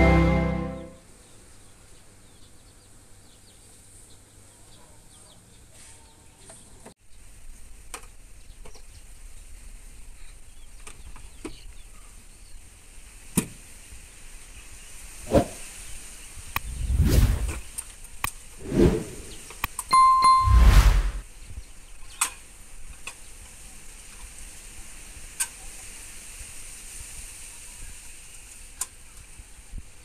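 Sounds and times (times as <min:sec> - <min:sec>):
intro music: 0:00.0 - 0:01.0.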